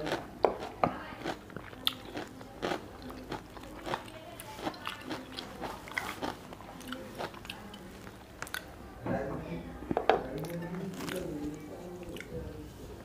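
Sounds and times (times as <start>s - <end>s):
wet chewing clicks and smacks: 0.1s - 8.7s, 12.0s - 12.4s.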